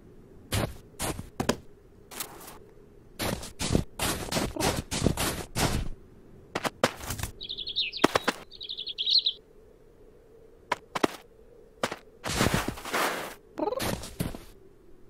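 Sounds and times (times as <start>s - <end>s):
cat crunching in snow: 3.2s - 6.0s, 12.2s - 14.5s
small bird chirping: 7.3s - 9.4s.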